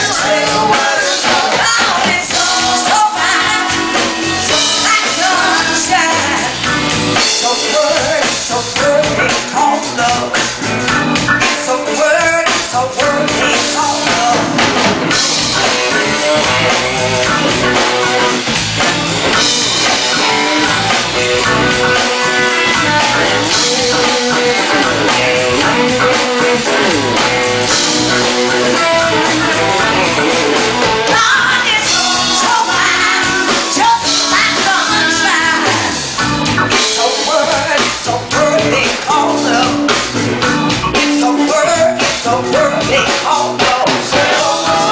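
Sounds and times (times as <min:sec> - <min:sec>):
blues-rock song with singer: 0:00.0 - 0:44.9.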